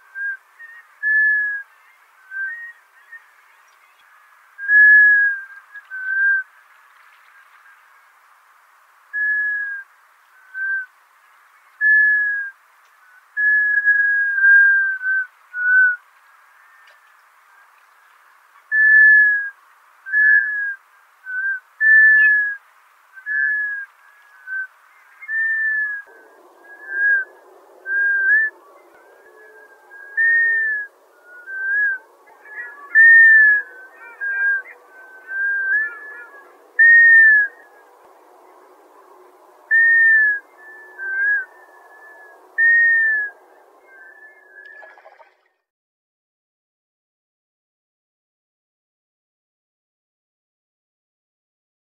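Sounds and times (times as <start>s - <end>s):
low rushing background noise: 0.0s - 45.2s
ducks giving whistled calls: 18.7s - 19.5s, 20.1s - 22.6s, 23.3s - 37.7s, 39.7s - 45.4s.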